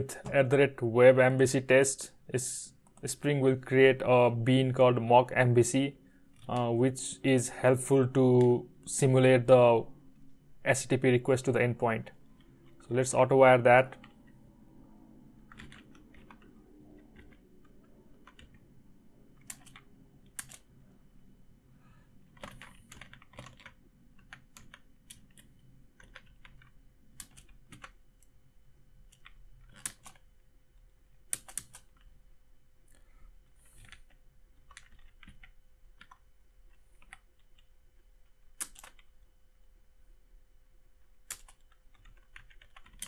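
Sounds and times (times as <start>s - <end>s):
faint steady hum: 0.0s - 43.0s
computer keyboard typing: 13.9s - 14.4s, 15.4s - 20.7s, 22.2s - 28.3s, 29.0s - 30.3s, 31.2s - 32.1s, 33.6s - 37.7s, 38.5s - 39.2s, 41.2s - 43.0s
sharp keyboard clicks: 15.4s - 18.7s, 19.3s - 20.7s, 22.2s - 28.3s, 29.0s - 30.3s, 31.2s - 32.1s, 33.6s - 37.7s, 38.5s - 39.2s, 41.2s - 43.0s.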